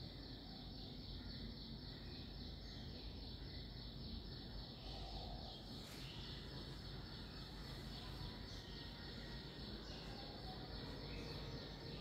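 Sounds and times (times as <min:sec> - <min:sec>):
faint background hiss: 0:00.0 - 0:12.0.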